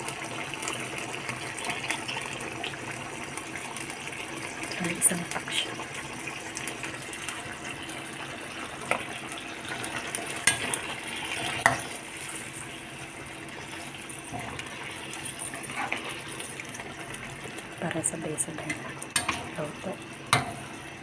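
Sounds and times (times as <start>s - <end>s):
curry bubbling and sizzling: 0.0s - 21.0s.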